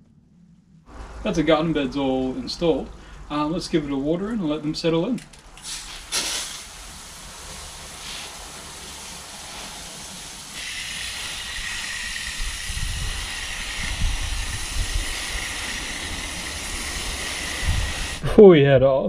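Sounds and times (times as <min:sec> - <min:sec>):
hose nozzle spray hissing: 0:05.6 - 0:18.2.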